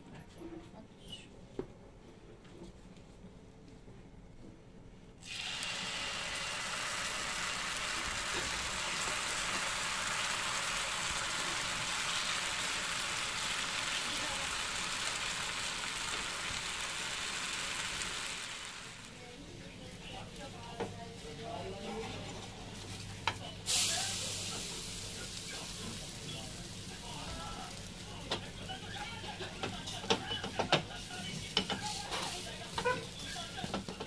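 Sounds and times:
batter sizzling in hot oil: 5.2s - 19.2s, 21.5s - 34.0s.

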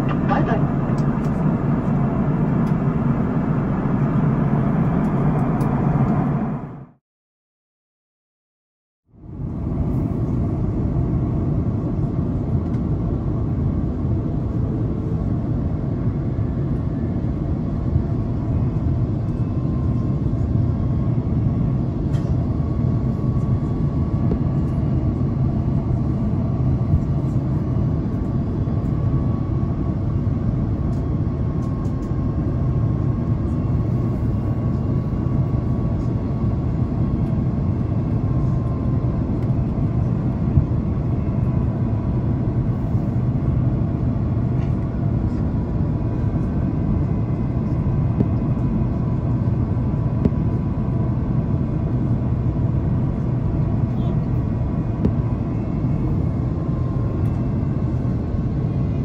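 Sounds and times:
airplane cabin rumble: 0.0s - 7.0s, 9.1s - 59.0s
faint steady whine: 11.9s - 59.0s.

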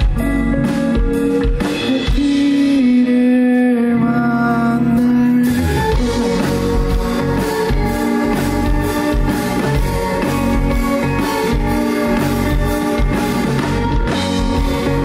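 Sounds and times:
drum kit: 0.0s - 15.0s
electric guitar chords: 0.0s - 15.0s.

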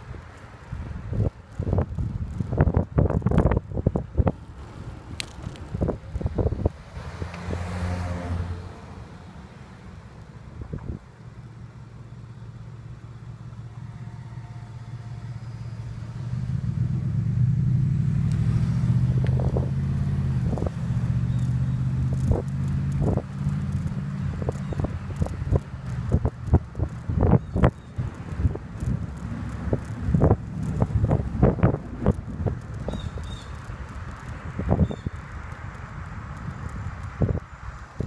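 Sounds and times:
wind rumbling on microphone: 0.0s - 11.5s, 15.4s - 38.0s
road traffic: 0.0s - 38.0s.

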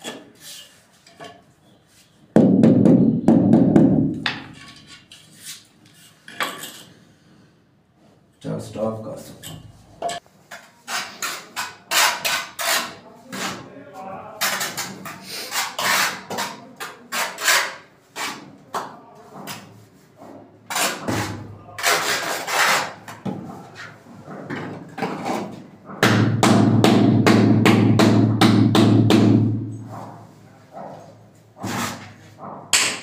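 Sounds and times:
trowel scraping mortar: 10.5s - 13.7s, 14.4s - 18.6s, 20.7s - 24.0s, 31.6s - 32.4s.

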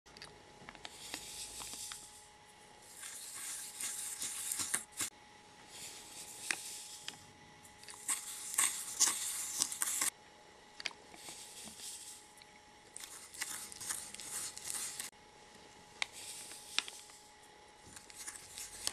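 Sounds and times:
spoon stirring and scraping cup: 2.8s - 5.1s, 7.8s - 10.1s, 11.2s - 12.3s, 12.9s - 15.1s, 17.9s - 18.9s.

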